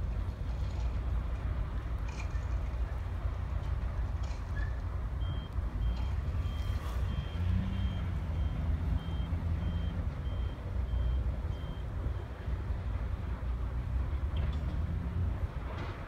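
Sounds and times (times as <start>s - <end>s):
locomotive engine rumbling: 0.0s - 16.0s
reversing alarm beeping: 5.2s - 12.4s.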